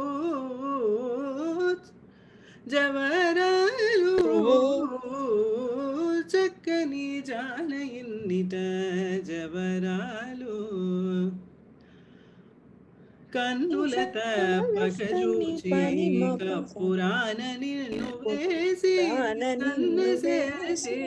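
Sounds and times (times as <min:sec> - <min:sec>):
lower second voice singing: 0:02.7 - 0:11.4, 0:13.3 - 0:21.0
woman singing ornamented melody: 0:13.7 - 0:16.8, 0:18.0 - 0:21.0.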